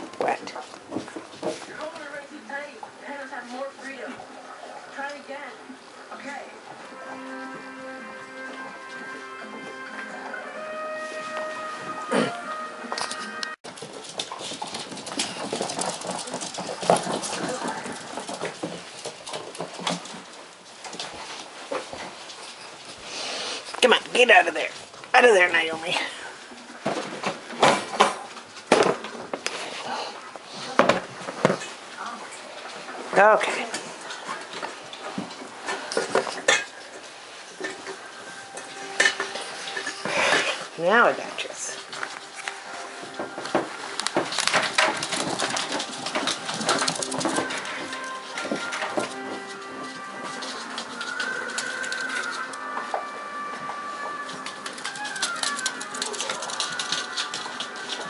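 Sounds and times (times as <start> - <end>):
puppy claws clicking on wooden floor: 43.6 - 52.6, 54.3 - 58.0.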